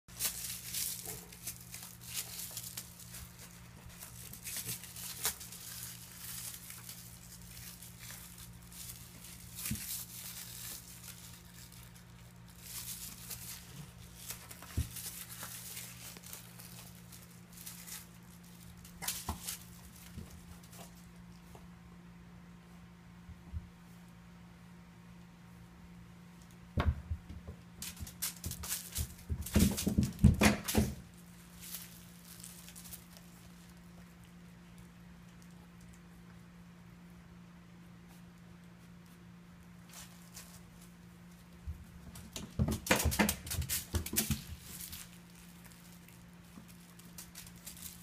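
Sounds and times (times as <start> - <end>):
steady low hum: 0.1 - 48.0.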